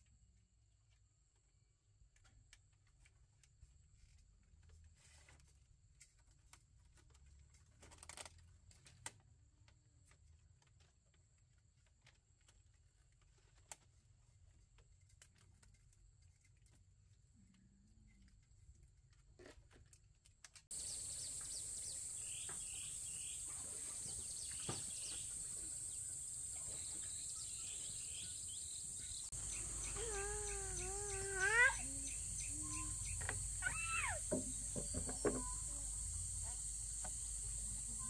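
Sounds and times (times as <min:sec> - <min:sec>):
birds chirping: 0:20.7 - 0:38.0
insect hiss: 0:20.7 - 0:38.0
wavering call: 0:29.4 - 0:35.9.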